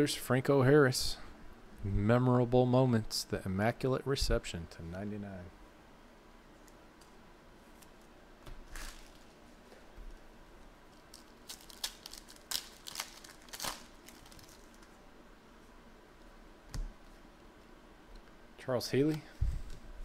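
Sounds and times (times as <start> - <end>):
foil wrapper tearing and crinkling: 8.7 - 9.4, 11.0 - 15.0.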